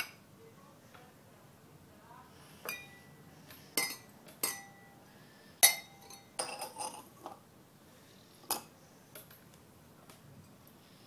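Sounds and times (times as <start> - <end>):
glass clinking on stone countertop: 2.6 - 3.1, 3.8 - 5.0, 5.6 - 7.4.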